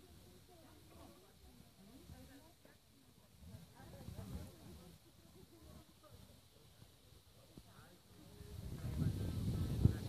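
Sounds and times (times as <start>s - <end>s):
wind buffeting microphone: 8.3s - 10.0s.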